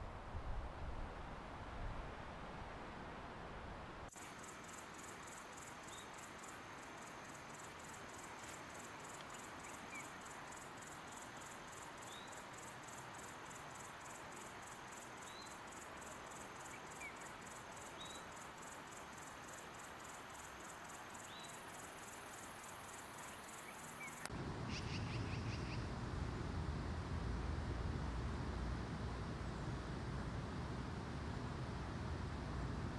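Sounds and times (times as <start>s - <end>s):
steady hiss: 0.0s - 24.3s
insect chirping: 4.1s - 25.9s.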